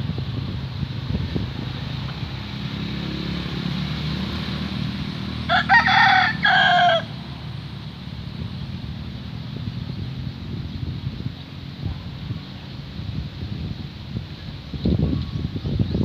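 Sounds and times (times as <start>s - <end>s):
rooster crowing: 5.4s - 7.2s.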